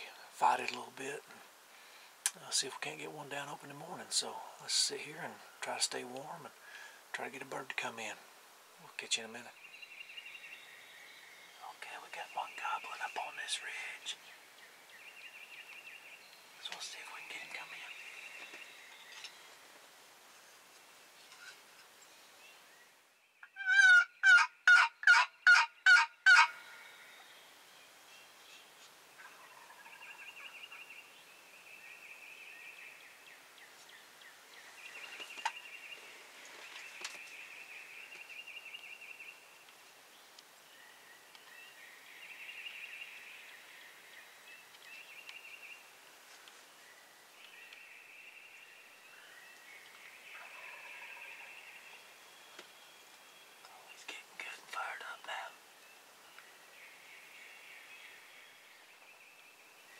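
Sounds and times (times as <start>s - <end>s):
distant turkey gobbling: 23.4s - 26.6s
turkey call yelps: 23.4s - 26.6s.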